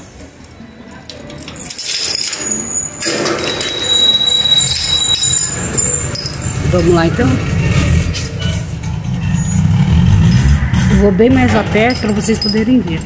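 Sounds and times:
metal gate clinking and rattling: 1.0s - 13.0s
high steady squeal: 2.4s - 11.0s.

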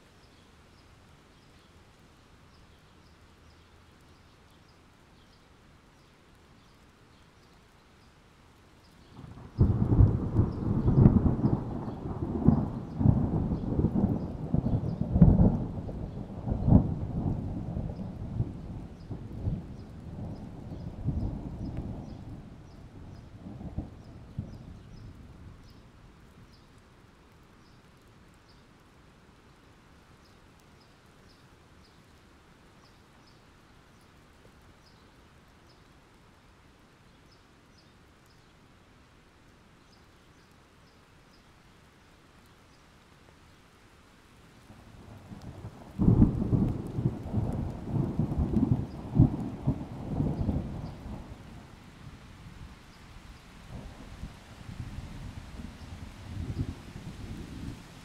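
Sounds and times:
steady rain: 0.0s - 58.0s
thunder rumbling: 9.2s - 25.7s, 45.0s - 51.8s, 53.7s - 58.0s
loud thunderclap: 45.9s - 51.3s.

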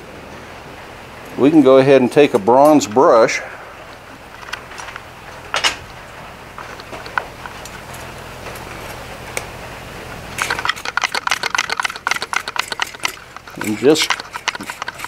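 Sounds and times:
wire brush scrubbing hot iron: 10.3s - 15.0s.

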